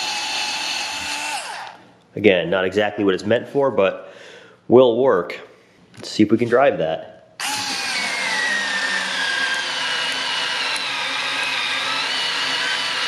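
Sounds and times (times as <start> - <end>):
cordless screwdriver whining: 0.0 - 1.8, 7.4 - 13.0.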